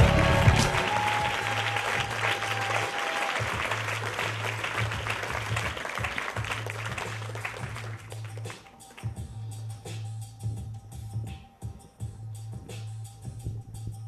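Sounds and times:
music with deep bass note: 0:00.0 - 0:02.3, 0:06.4 - 0:14.0
audience applause: 0:00.0 - 0:09.0.

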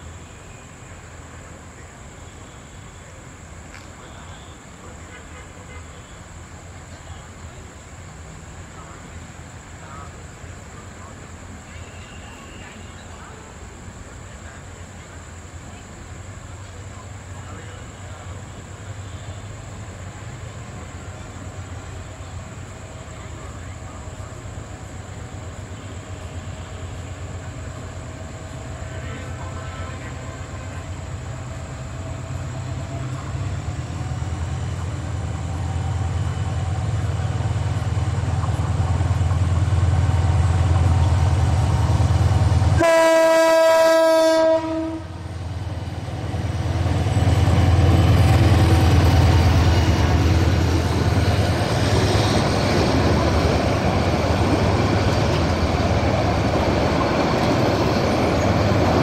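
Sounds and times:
diesel locomotive engine rumble: 0:00.0 - 0:59.0
train wheels rumbling on rails: 0:02.7 - 0:59.0
train horn: 0:04.1 - 0:06.2, 0:11.7 - 0:13.2, 0:28.8 - 0:30.6, 0:42.6 - 0:45.4.

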